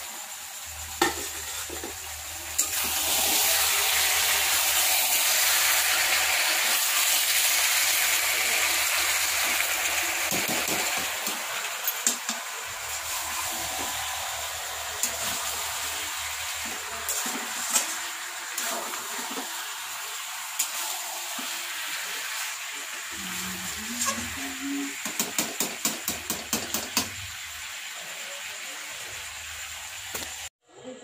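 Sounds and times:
curry sizzling in a pan: 0.0s - 30.5s
metal spatula scraping a pan: 1.0s - 2.0s, 16.6s - 18.0s.

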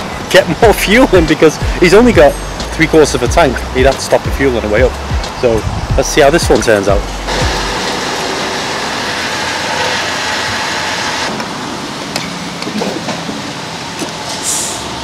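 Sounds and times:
fuel flowing hiss: 5.0s - 12.0s, 14.2s - 15.0s.

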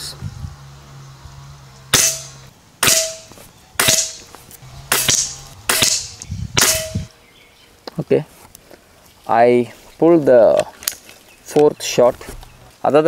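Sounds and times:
air rifle shots cracking: 1.9s - 4.3s, 4.9s - 7.1s.

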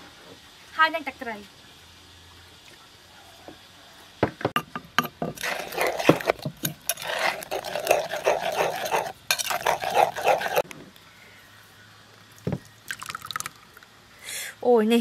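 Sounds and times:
spoon clinking in mortar: 5.4s - 10.6s
spoon scraping and swishing sauce: 5.4s - 10.6s.

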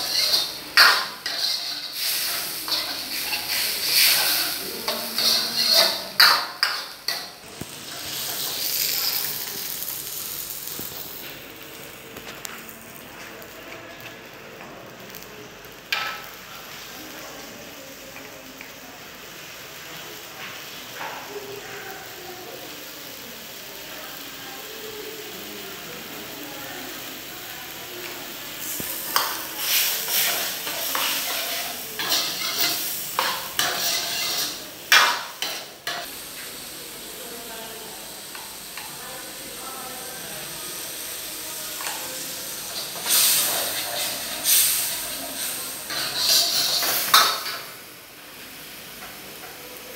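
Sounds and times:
steel ladle scraping a wok: 0.0s - 7.3s, 29.0s - 36.0s, 42.8s - 47.5s
sauce sizzling in a wok: 0.0s - 49.9s.

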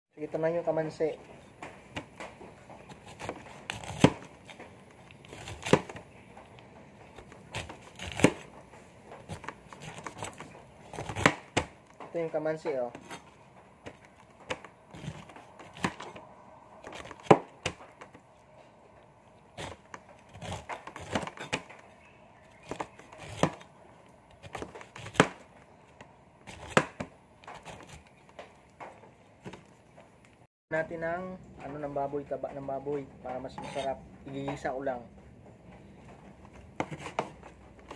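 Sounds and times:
knife scraping rind: 2.8s - 6.1s, 7.1s - 8.6s, 9.2s - 11.6s, 12.9s - 16.2s, 19.5s - 21.8s, 22.4s - 23.7s, 24.3s - 25.4s, 26.4s - 28.3s, 33.5s - 34.0s.

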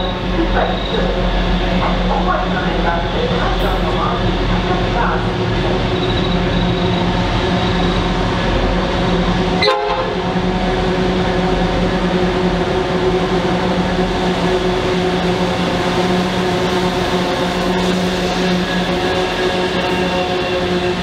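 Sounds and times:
locomotive engines droning: 0.0s - 21.0s
train horn blast: 9.5s - 10.5s.

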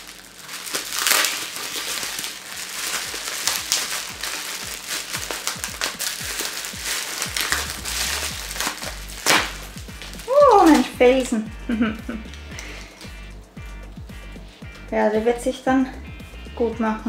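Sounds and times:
electronic drum beat: 4.6s - 16.9s
falling bass hits: 7.3s - 17.0s.

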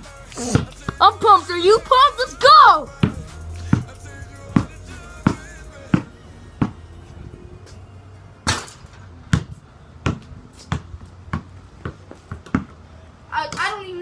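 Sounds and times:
basketball bouncing: 2.9s - 6.8s, 9.3s - 12.8s.

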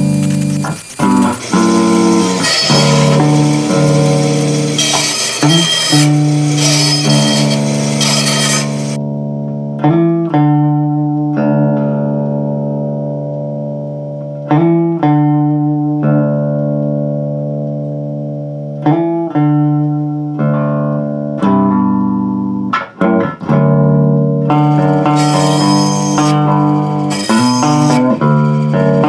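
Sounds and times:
plucked bass guitar notes: 9.0s - 25.2s.

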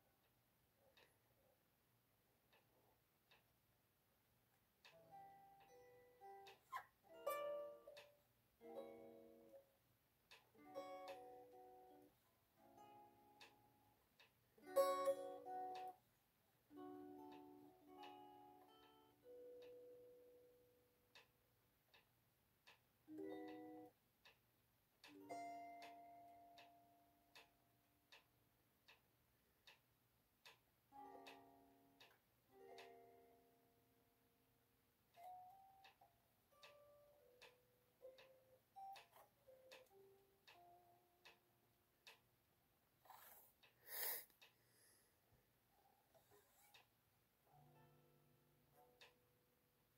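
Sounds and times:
soft steady ticking: 0.0s - 49.9s
electric guitar played quietly: 4.9s - 9.7s, 10.5s - 14.0s, 14.6s - 16.0s, 16.7s - 20.8s, 23.1s - 23.9s, 25.1s - 27.0s, 30.9s - 33.8s, 35.2s - 41.2s.

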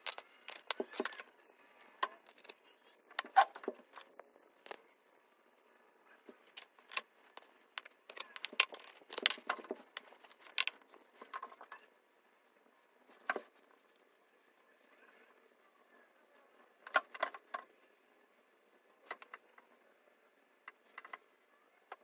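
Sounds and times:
handling clicks and taps: 0.0s - 1.3s, 1.9s - 2.5s, 6.4s - 10.8s.

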